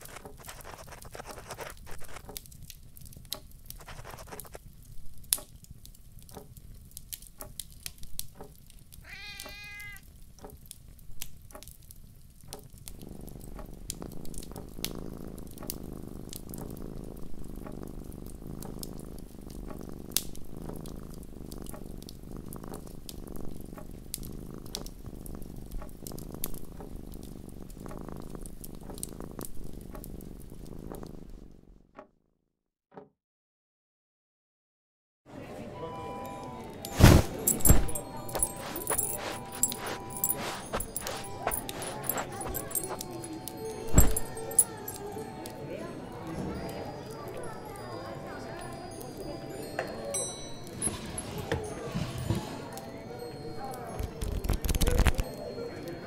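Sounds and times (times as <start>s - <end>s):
wood fire crackling and popping: 0.0s - 31.6s, 53.9s - 55.4s
cat purring: 0.0s - 31.9s, 36.8s - 47.8s, 50.5s - 55.9s
cat meowing: 9.0s - 10.1s.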